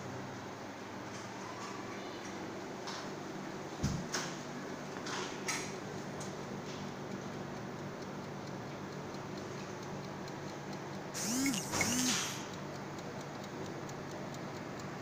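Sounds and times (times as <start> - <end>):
kitchen timer ticking: 6.9 - 15.0
steady low hum: 10.0 - 15.0.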